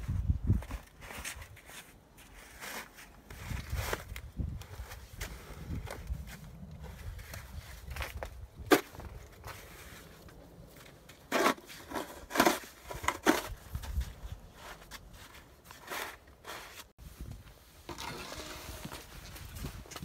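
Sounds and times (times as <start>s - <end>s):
snow shovel scraping concrete: 0.7s - 4.1s, 11.1s - 13.8s, 14.6s - 16.9s, 17.8s - 19.7s.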